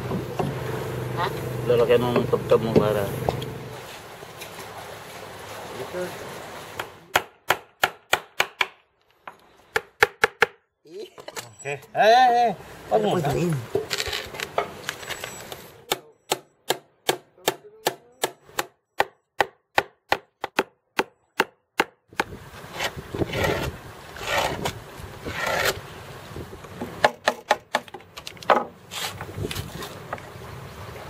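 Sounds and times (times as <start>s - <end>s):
rough scraping on wood: 13.7s - 15.7s, 22.6s - 25.9s, 28.5s - 30.1s.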